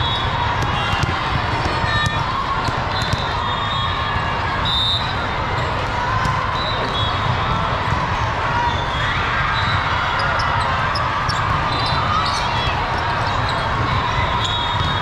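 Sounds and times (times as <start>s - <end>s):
volleyballs struck and bouncing: 0.5s - 3.4s.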